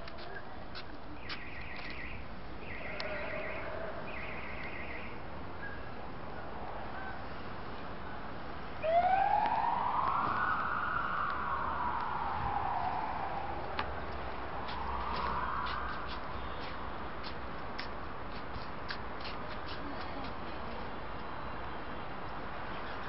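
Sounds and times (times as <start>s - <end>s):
city background noise: 0.0s - 23.0s
siren wailing: 1.6s - 5.2s, 8.8s - 16.1s.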